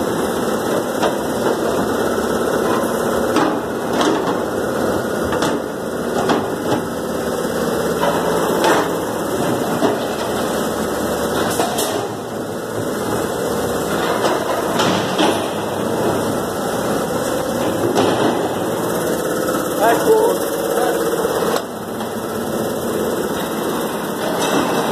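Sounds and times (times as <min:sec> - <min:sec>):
machinery running: 0:05.8 - 0:24.9
sharp metal knocks and clanks: 0:14.0 - 0:16.2.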